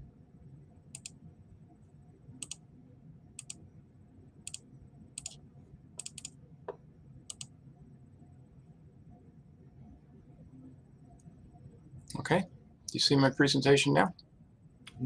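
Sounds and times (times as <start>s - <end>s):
low room hum: 0.0s - 15.0s
mouse buttons clicking: 6.0s - 6.3s, 7.3s - 7.5s.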